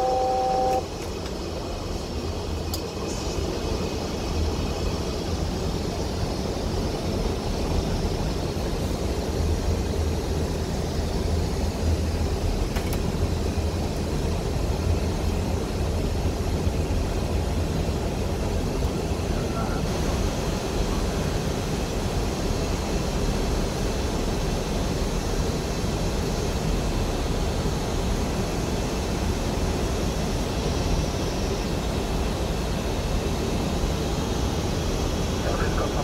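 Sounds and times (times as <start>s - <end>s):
two-note electronic tone: 0.0s - 0.9s
aircraft cockpit rumble: 0.0s - 36.0s.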